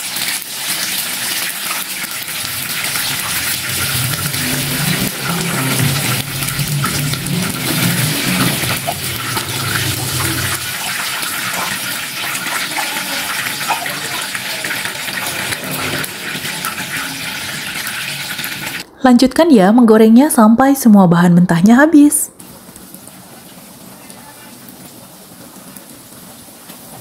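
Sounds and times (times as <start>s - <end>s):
oil sizzling in a frying pan: 0.0s - 18.8s, 22.4s - 27.0s
low hum: 1.0s - 21.5s.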